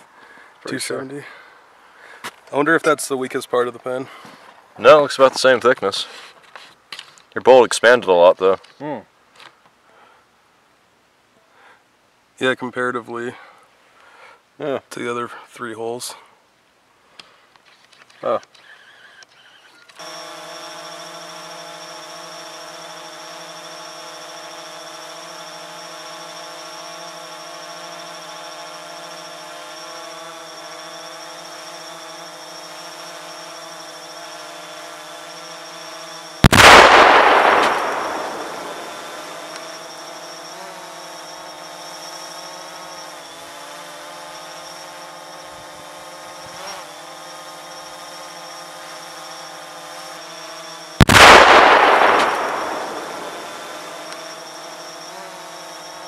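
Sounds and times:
drone motors whining: 18.6s - 56.0s
loud explosion blast: 36.4s - 39.4s, 51.0s - 54.0s.

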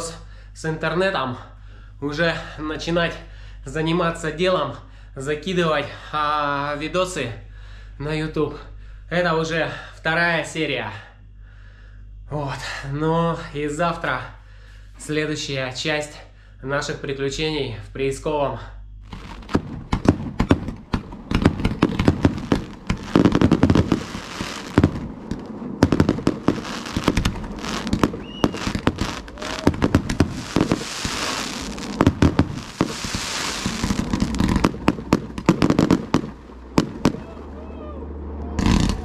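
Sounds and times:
fireworks hissing and crackling: 19.0s - 37.2s, 38.6s - 39.0s
fireworks bangs: 19.1s - 37.6s, 38.5s - 39.0s.

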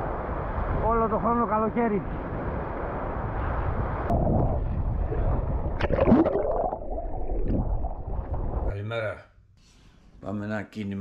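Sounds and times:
surf and wind: 0.0s - 6.7s
bubbling gurgles: 5.3s - 8.7s.

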